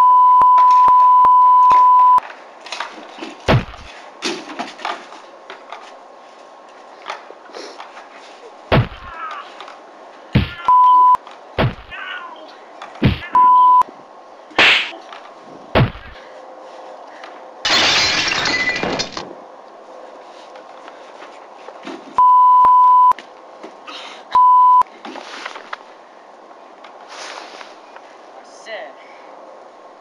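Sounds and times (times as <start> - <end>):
high beep: 0.0 - 2.2, 10.6 - 11.2, 13.3 - 13.8, 22.2 - 23.2, 24.4 - 24.8
crash of things breaking: 3.2 - 5.0, 17.6 - 19.4
punches thudding: 3.5 - 3.9, 8.7 - 9.1, 10.4 - 10.7, 11.6 - 12.0, 13.0 - 13.4, 14.6 - 14.9, 15.8 - 16.2.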